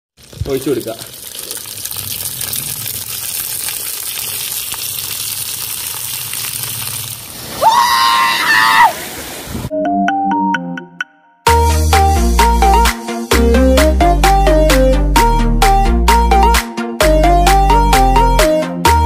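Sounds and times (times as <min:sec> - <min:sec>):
liquid pouring and splashing: 0:00.2 - 0:07.6
music with a beat: 0:11.5 - 0:19.0.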